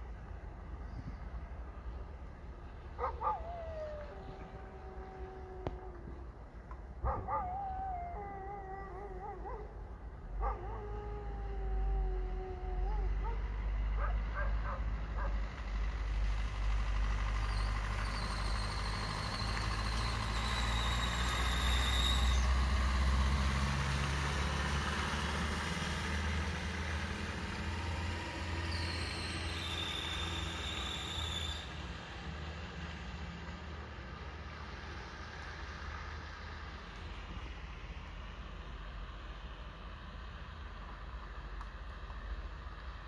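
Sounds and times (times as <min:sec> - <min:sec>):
heavy vehicle rumbling past: 0:09.6 - 0:41.6.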